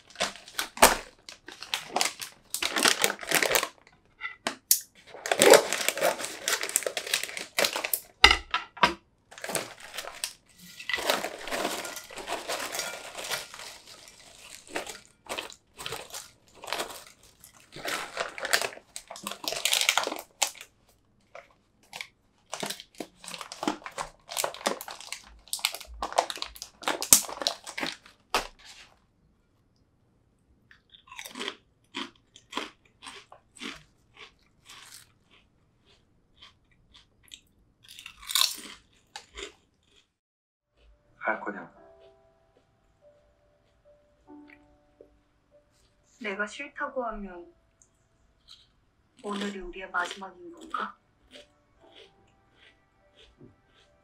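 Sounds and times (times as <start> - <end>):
scissors cutting plastic bag: 0.0 - 3.8, 4.7 - 8.2, 9.4 - 20.7, 21.8 - 28.9
plastic bag crinkling: 0.0 - 3.9, 5.0 - 8.2, 9.3 - 29.0
chips pouring into ceramic bowl: 9.4 - 20.7, 21.9 - 28.9.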